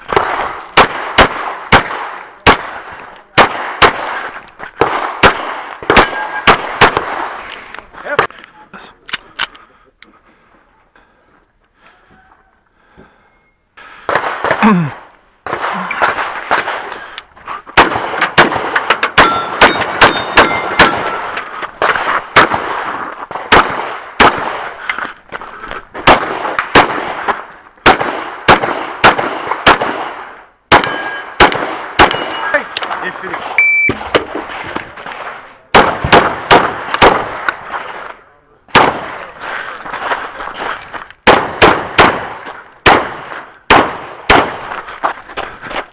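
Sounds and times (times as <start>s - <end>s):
handgun shots: 0.1s - 7.2s, 17.8s - 22.7s, 23.3s - 24.6s, 26.0s - 32.4s, 41.2s - 44.7s
metallic clangs and pings: 2.5s - 3.3s, 6.0s - 6.5s, 19.2s - 21.4s, 30.8s - 31.4s, 33.6s - 34.0s.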